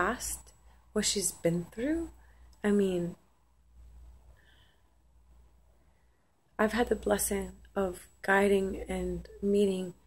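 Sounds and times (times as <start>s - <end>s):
faint low hum: 0.0s - 10.0s
faint short breath: 4.3s - 5.0s.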